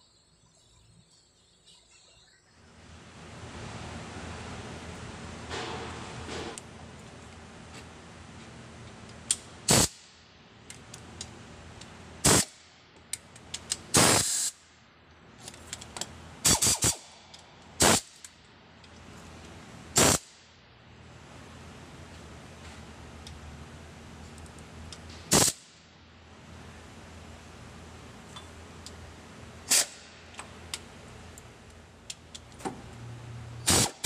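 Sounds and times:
pneumatic wrench bursts: 9.7 - 10.0, 12.2 - 12.6, 13.9 - 14.6, 16.4 - 17.1, 17.8 - 18.2, 20.0 - 20.3, 25.3 - 25.6, 29.7 - 30.1, 33.6 - 34.0.

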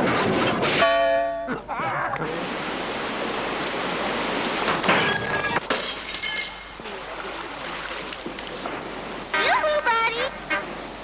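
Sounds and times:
water splashing and churning: 2.2 - 11.0.

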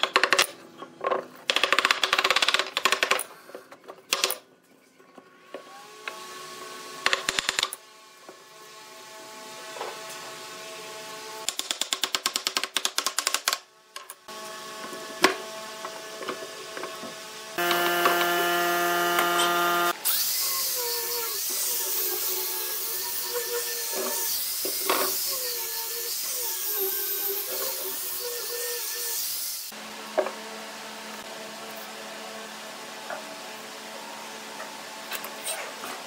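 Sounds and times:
sanding disc scrubbing wood: 17.6 - 20.0
angle grinder motor whine: 17.6 - 20.1.

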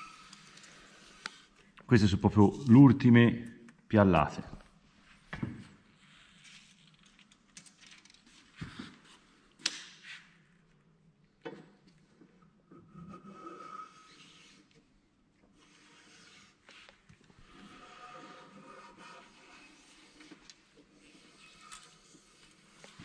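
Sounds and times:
hand plane scraping: 15.6 - 23.0.

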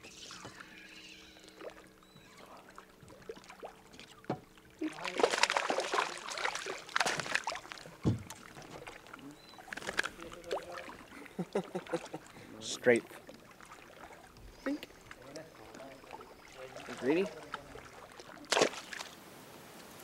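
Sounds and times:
fish splashing and thrashing: 0.0 - 19.2
dull thump: 8.0 - 8.4.

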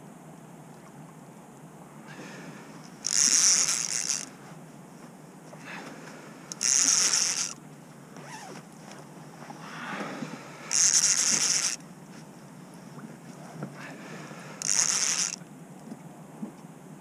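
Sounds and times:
fishing reel ratcheting: 3.0 - 4.3, 6.5 - 7.6, 10.7 - 11.8, 14.6 - 15.4.

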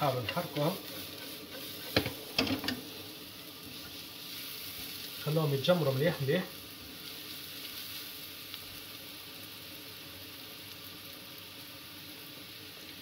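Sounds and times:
spatula stirring in pan: 0.0 - 5.2
vegetables sizzling in oil: 0.0 - 13.0.

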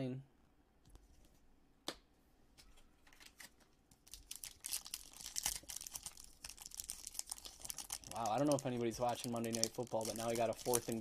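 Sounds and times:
foil wrapper crinkling and tearing: 4.0 - 11.0.

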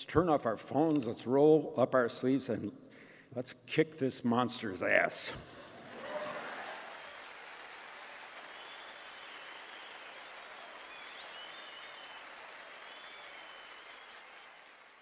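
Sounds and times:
audience applauding: 5.7 - 15.0.

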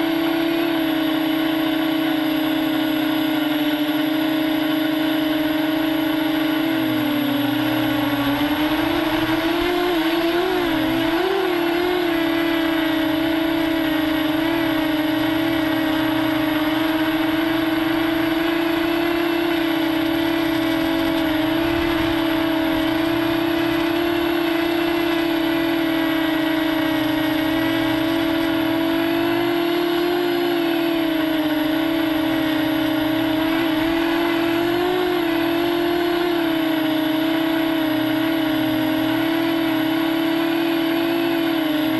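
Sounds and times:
quadcopter propellers buzzing: 0.0 - 41.9.

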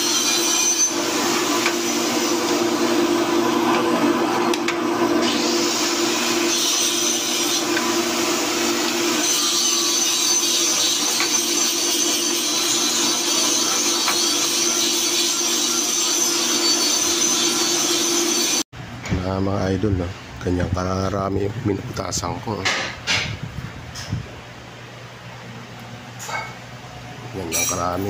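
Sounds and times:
drill bit grinding metal: 0.0 - 18.6.

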